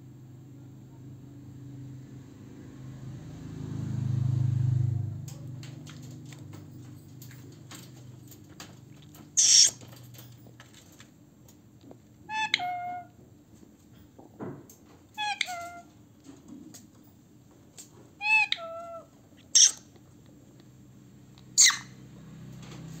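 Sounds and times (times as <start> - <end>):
parakeet humming: 9.4 - 9.8, 12.3 - 13.1, 18.2 - 19.8
parakeet screech: 9.4 - 9.8, 12.3 - 13.0, 18.2 - 19.9, 21.6 - 22.0
parakeet squawk: 9.4 - 9.8, 12.3 - 13.1, 15.2 - 15.8, 18.2 - 19.9, 21.6 - 22.0.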